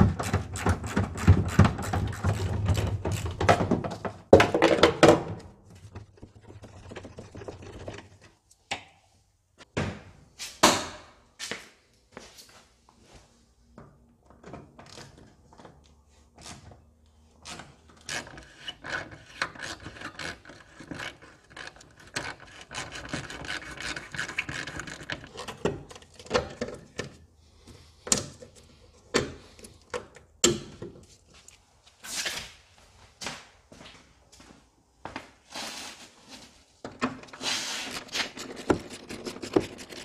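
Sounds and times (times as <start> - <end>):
hand tool clicking and scraping: 17.4 - 27.2, 37.2 - 40.0.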